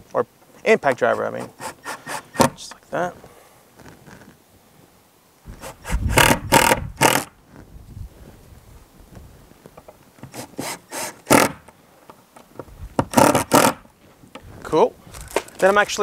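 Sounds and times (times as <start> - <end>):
impact driver driving screws: 1.4 - 2.6, 5.6 - 7.3, 10.2 - 11.6, 13.0 - 13.8.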